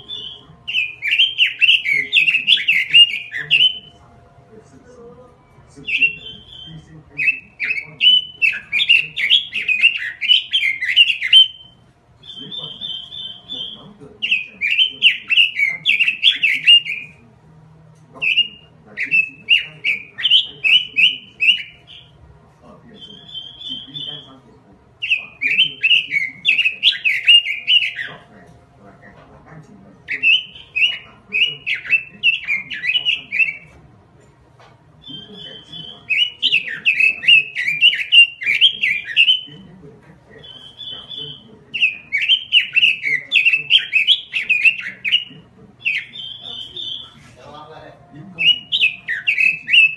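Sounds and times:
fast high bird trill: 0.0s - 4.0s, 25.0s - 28.2s, 48.4s - 49.9s
bird singing warbled phrases: 0.0s - 49.9s.

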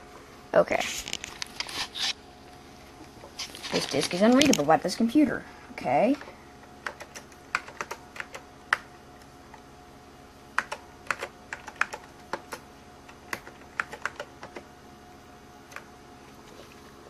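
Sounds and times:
computer keyboard typing: 6.8s - 8.9s, 10.6s - 14.7s.

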